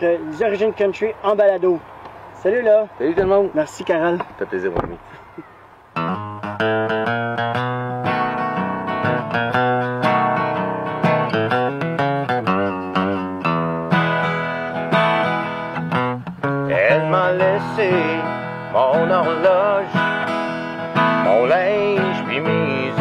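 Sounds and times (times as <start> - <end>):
acoustic guitar picking: 3.1 - 23.0
man singing: 16.7 - 23.0.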